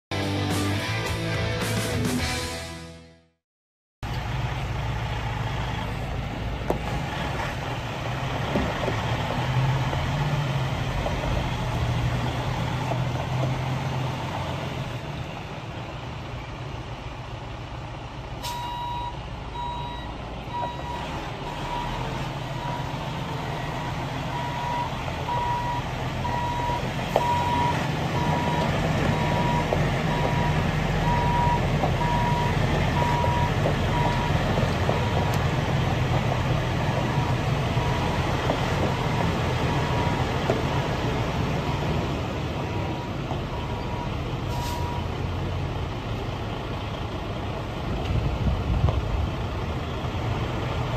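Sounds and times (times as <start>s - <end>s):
diesel truck engine running: 4.0s - 50.9s
backup alarm beeping: 18.5s - 21.1s, 22.6s - 34.4s.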